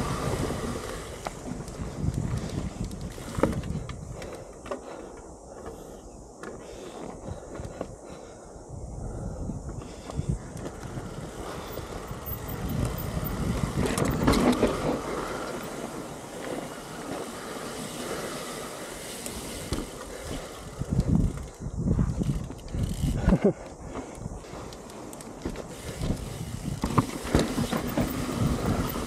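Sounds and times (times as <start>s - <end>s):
bike tyres on dirt and rocks: 0.0s - 29.0s
sharp knocks from bike: 25.4s - 28.4s.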